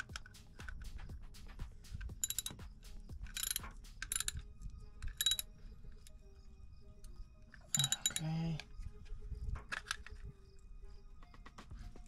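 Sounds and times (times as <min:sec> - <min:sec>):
socket ratchet clicking: 0:02.0 - 0:02.6, 0:03.2 - 0:05.5, 0:07.7 - 0:08.2.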